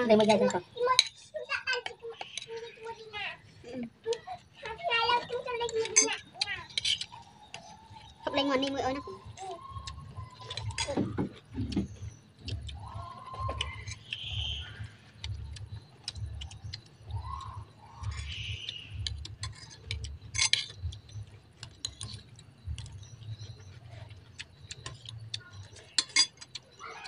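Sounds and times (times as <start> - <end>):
cutlery clinking on plates: 19.4 - 20.8, 25.7 - 26.7.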